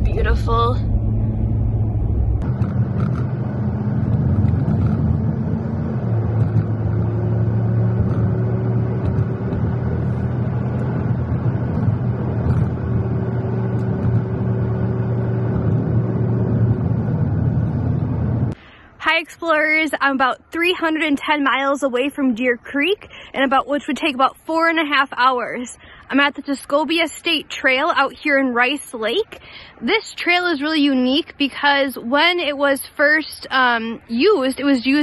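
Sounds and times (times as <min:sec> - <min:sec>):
car engine hum: 0:00.0 - 0:18.6.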